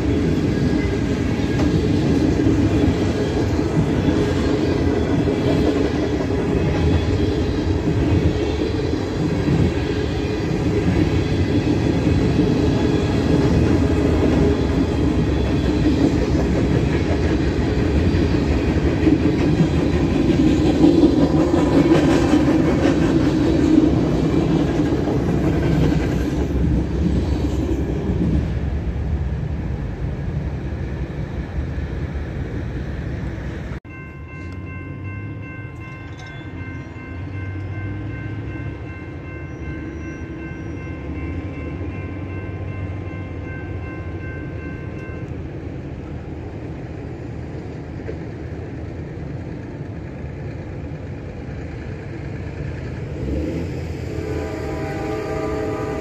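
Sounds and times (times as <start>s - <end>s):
freight train rumbling by: 0.0s - 56.0s
locomotive horn: 53.4s - 56.0s.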